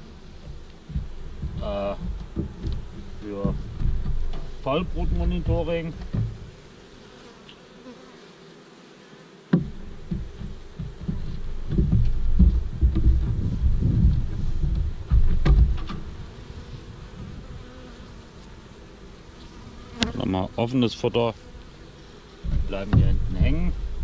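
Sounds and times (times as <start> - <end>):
microphone handling rumble: 0.0 - 6.5, 9.6 - 17.6, 22.4 - 24.0
honeybees buzzing: 0.0 - 24.0
sharp knocks: 0.3 - 6.5, 9.5 - 16.1, 22.4 - 23.7.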